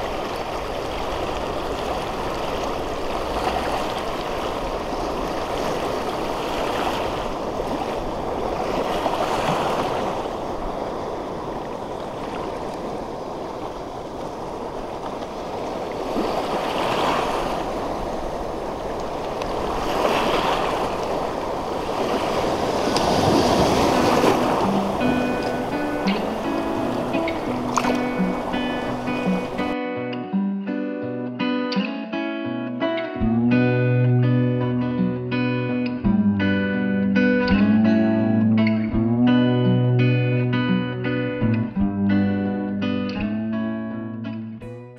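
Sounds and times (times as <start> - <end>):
small waves washing over rocks: 0.0 - 29.8.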